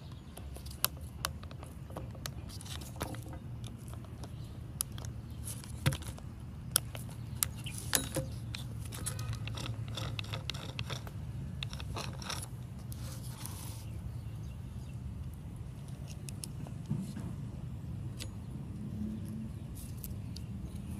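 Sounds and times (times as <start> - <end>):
metal clicks and rattling: 6.8 - 12.6.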